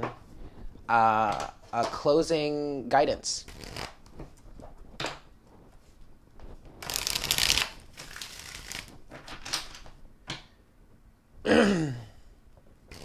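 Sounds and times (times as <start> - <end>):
cards being shuffled: 3.4 - 10.0
card flicks and rustles: 6.4 - 10.0.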